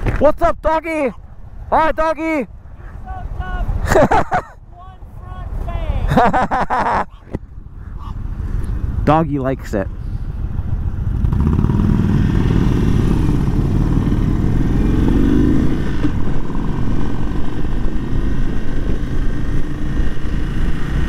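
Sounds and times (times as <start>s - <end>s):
motorcycle engine pulling away: 10.7s - 21.0s.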